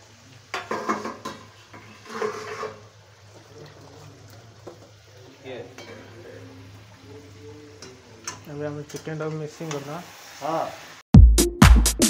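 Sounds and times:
metal utensils clattering: 0.6s - 2.8s.

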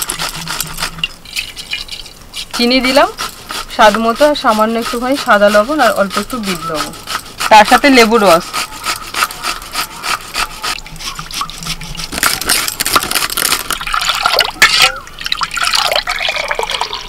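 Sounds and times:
juice dripping: 0.0s - 3.6s, 13.1s - 17.0s
juice pouring into steel bowl: 13.4s - 17.0s.

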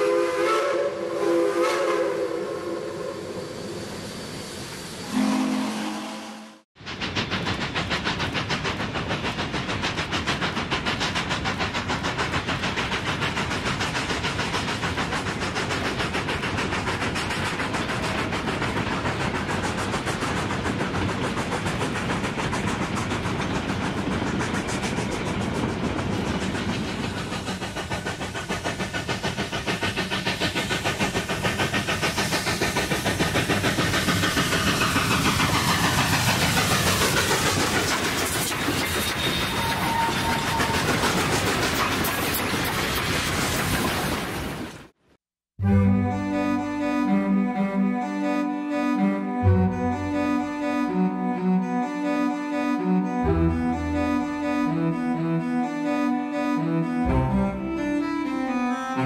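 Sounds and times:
steam train beat: 0.0s - 44.5s, 45.6s - 59.0s
steam hiss: 0.0s - 44.9s.

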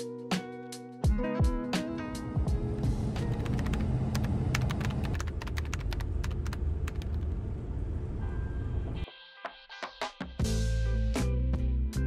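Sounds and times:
car driving in traffic: 2.8s - 9.0s
keyboard typing: 3.2s - 7.4s.

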